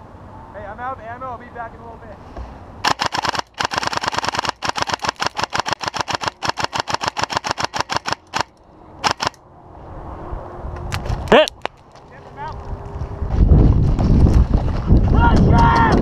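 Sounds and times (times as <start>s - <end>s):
airsoft rifle firing bursts: 2.8s - 9.4s.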